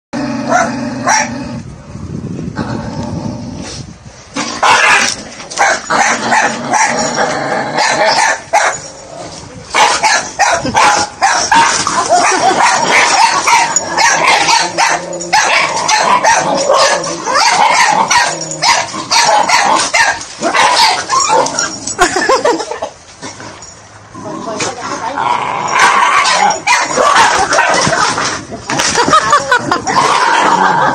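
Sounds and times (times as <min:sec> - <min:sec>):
dog barking and yelping: 0:00.5 - 0:01.3, 0:04.6 - 0:09.0, 0:09.7 - 0:22.0, 0:25.7 - 0:28.2.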